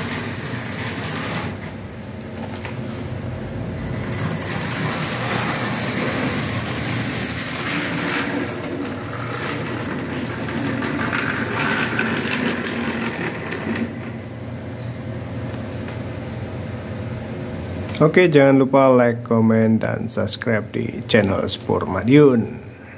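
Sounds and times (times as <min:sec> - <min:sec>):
model train motor whine: 0:00.0 - 0:01.7, 0:03.8 - 0:14.1
wheels clicking on rails: 0:03.8 - 0:14.1.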